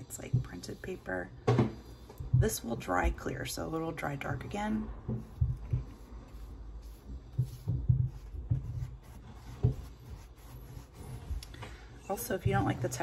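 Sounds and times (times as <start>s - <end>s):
paintbrush thumping on paper: 4.2s - 11.4s.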